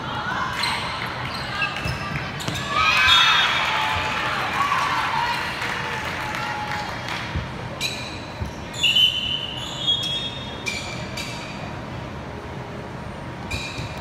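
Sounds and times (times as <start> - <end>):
shoes squeaking on gym floor: 0.6 - 3.2, 7.7 - 11.8, 13.4 - 14.0.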